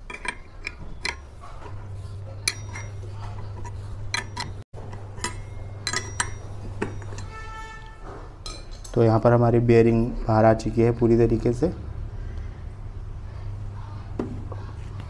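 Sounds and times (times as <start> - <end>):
spanner clinking on metal: 0.0 - 7.8
steady low hum: 0.0 - 15.0.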